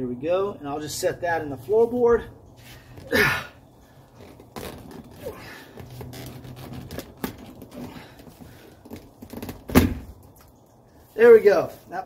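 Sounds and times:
upholstery rustling: 3.8s - 10.1s.

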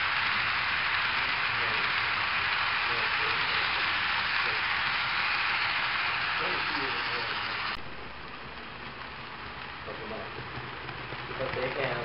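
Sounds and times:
model train rolling on track: 0.0s - 12.0s
faint voices: 6.1s - 7.8s.

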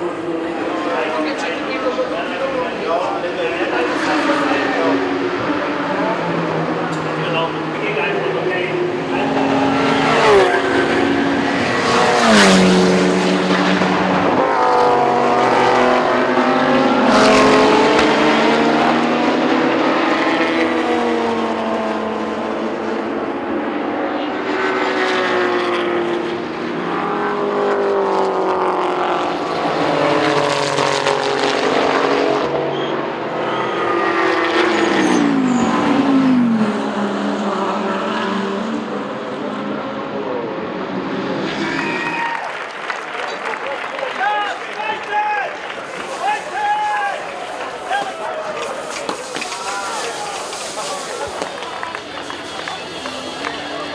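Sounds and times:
race cars passing at high revs: 0.0s - 53.9s.

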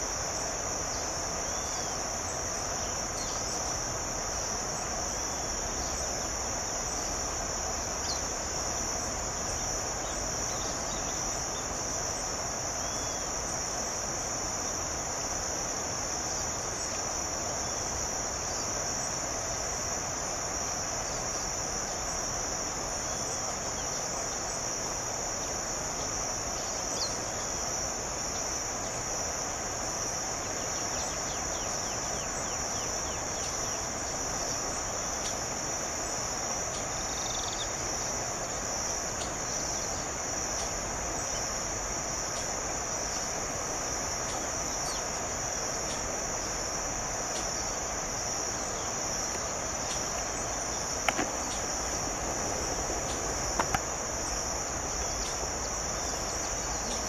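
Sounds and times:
even hiss: 0.0s - 57.0s
insect chorus drone: 0.0s - 57.0s
faint chirps: 48.5s - 57.0s.

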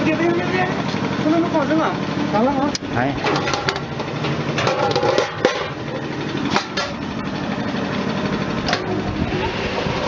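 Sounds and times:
processing machines running: 0.0s - 10.0s
metal basket knocking and clanking: 3.2s - 5.8s.

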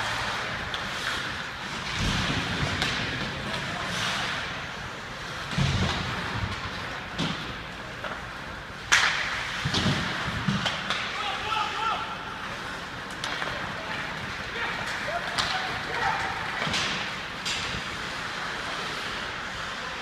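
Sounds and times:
skate blades scraping ice: 0.0s - 11.5s, 12.2s - 20.0s
hockey sticks and puck clacking: 0.0s - 20.0s
sharp puck crack: 8.8s - 11.2s.

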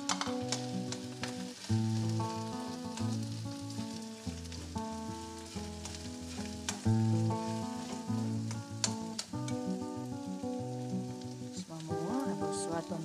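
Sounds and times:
food sizzling in oil: 0.0s - 13.0s
background music: 11.1s - 13.0s.

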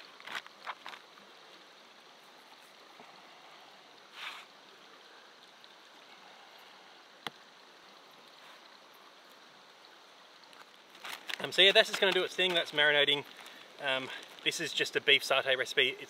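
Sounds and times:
river flowing: 0.0s - 16.0s
plastic bag crinkling: 10.9s - 13.6s.

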